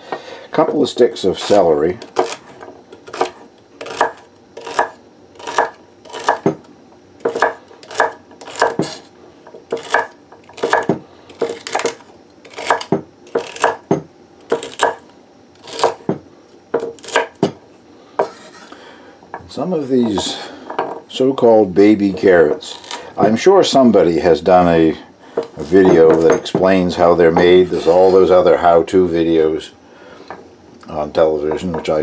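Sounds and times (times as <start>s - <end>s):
knife chopping on wooden board: 3.0s - 6.6s, 7.2s - 9.0s, 9.7s - 15.0s, 15.6s - 17.6s.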